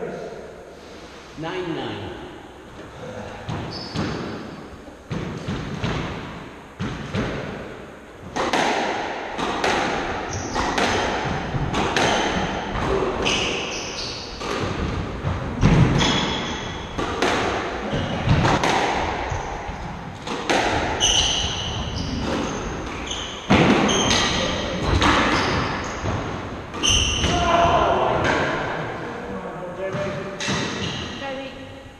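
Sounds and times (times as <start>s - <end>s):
shoes squeaking on wooden floor: 3.5s - 4.5s, 12.0s - 14.8s, 15.6s - 17.0s, 19.2s - 27.9s
squash ball hits echoing: 3.5s - 29.1s, 29.8s - 31.3s.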